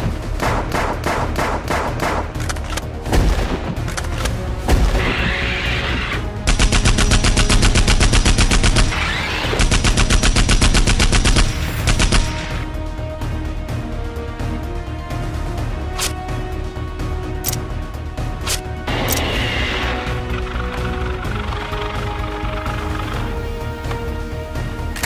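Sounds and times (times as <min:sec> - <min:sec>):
background music: 0:00.0 - 0:25.0
rapid machine-gun fire: 0:06.4 - 0:12.6.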